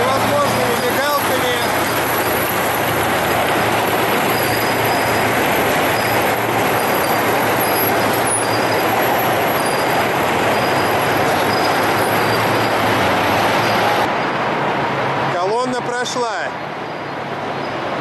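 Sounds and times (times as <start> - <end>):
vehicles passing close by: 0.0 - 18.0.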